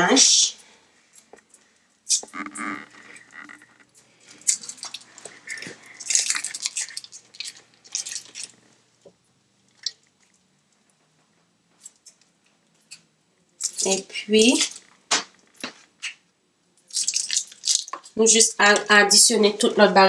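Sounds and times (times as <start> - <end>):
foil wrapper crinkling: 4.3 - 8.6, 16.9 - 18.0.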